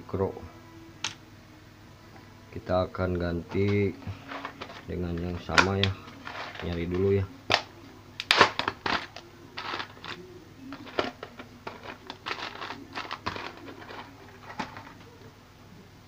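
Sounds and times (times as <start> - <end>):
rustling crinkles: 3.5 - 15.3
small parts clicking and rattling: 8.3 - 15.0.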